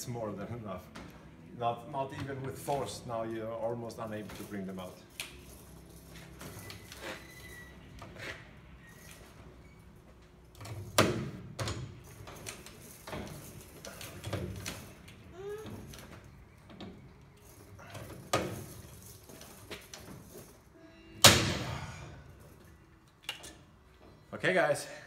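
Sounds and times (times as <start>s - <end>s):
short squeaks: 6.4s - 10.2s.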